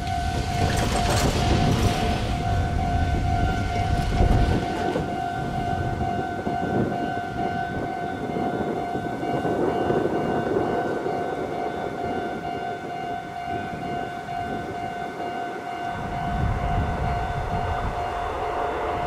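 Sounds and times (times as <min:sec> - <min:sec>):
level crossing warning bell: 0:00.0 - 0:19.0
heavy low rumble: 0:15.9 - 0:19.0.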